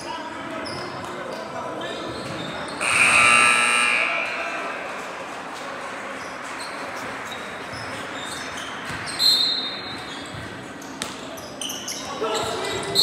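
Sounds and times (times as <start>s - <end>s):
crowd murmur: 0.0s - 13.0s
sneakers squeaking on court: 0.6s - 3.0s, 6.2s - 13.0s
ball bounce: 8.8s - 9.2s.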